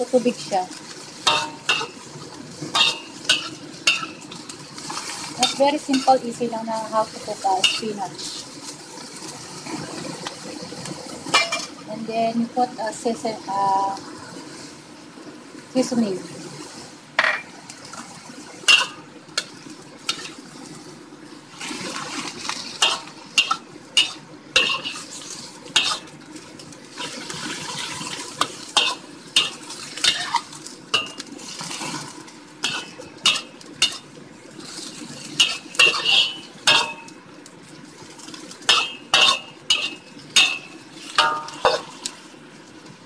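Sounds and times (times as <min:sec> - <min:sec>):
pan sizzling: 0:00.0 - 0:43.0
spatula scraping a wok: 0:00.8 - 0:08.8, 0:20.1 - 0:20.4, 0:21.6 - 0:26.2, 0:26.9 - 0:37.2, 0:38.6 - 0:42.2.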